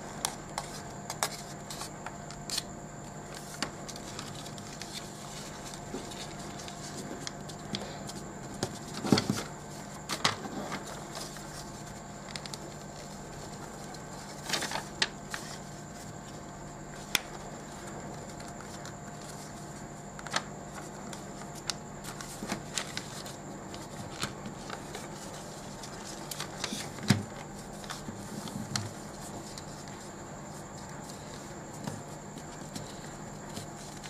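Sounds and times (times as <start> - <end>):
steady low hum: 0.0 - 34.0
paper rustling and crinkling: 0.2 - 34.0.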